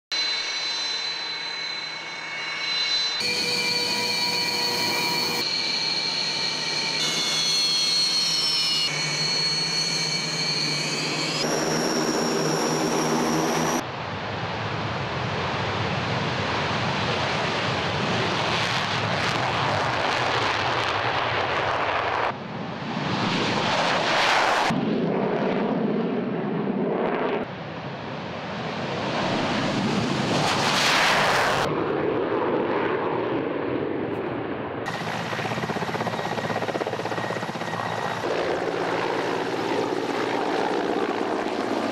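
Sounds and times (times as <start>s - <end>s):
jet engines idling whine: 0.1s - 19.3s, 34.1s - 41.9s
jets taking off and flying by: 0.2s - 41.9s.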